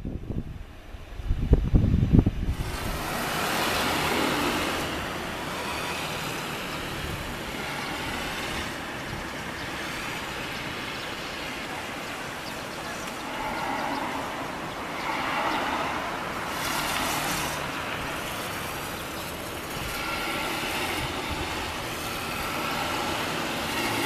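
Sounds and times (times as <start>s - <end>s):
wind thumps on microphone: 0.0s - 5.1s
jet engines roaring: 2.5s - 24.0s.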